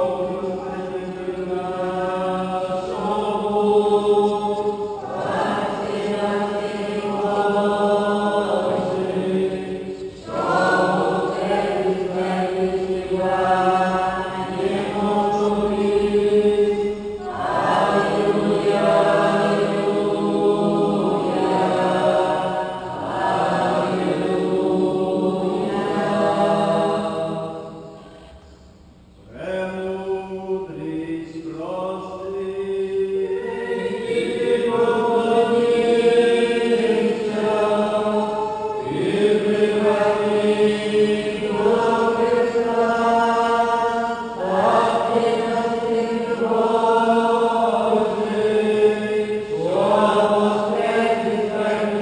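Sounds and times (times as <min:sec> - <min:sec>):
voices chanting: 0:00.0 - 0:28.3, 0:29.2 - 0:52.0
low held drone: 0:00.0 - 0:29.5.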